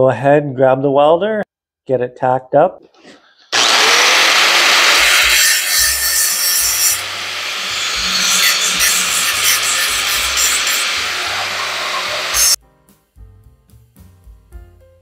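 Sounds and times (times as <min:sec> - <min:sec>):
angle grinder grinding metal: 0:03.6 - 0:12.6.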